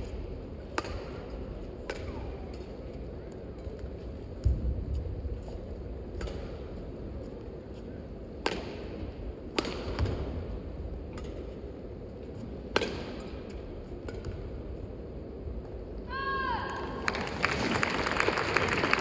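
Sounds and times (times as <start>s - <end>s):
low background hum: 0.0s - 19.0s
rackets striking shuttlecock: 0.6s - 4.6s, 6.1s - 6.9s, 8.3s - 14.6s.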